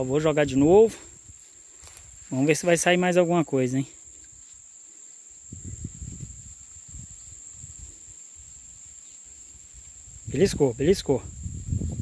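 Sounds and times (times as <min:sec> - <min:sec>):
high-pitched insect call: 0:00.0 - 0:12.0
low rumbling on microphone: 0:10.2 - 0:12.0.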